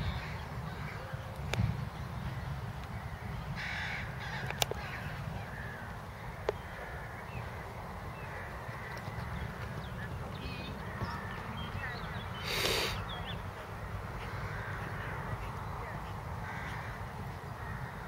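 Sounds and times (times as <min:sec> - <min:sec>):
crows cawing: 0:03.6 - 0:09.4, 0:14.2 - 0:15.2, 0:16.4 - 0:18.0.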